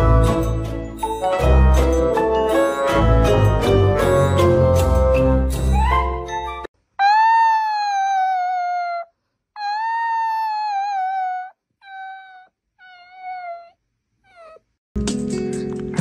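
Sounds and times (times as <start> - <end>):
puppy howling: 7.0 - 13.7, 14.3 - 14.6.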